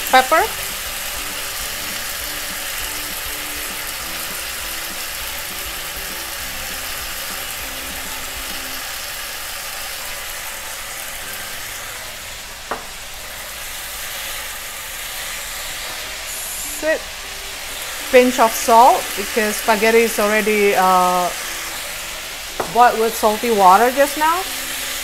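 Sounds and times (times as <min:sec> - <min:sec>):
food sizzling in frying pan: 0:00.0 - 0:25.0
hand pepper grinder grinding: 0:24.0 - 0:25.0.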